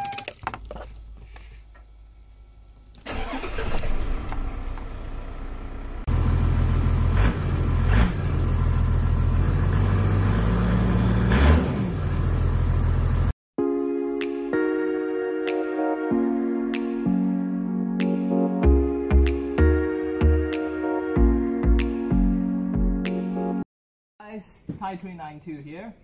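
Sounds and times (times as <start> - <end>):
diesel engine starting: 2.9 - 13.3
diesel engine idling: 3.1 - 11.2, 11.9 - 13.3
engine revving: 6.0 - 13.3.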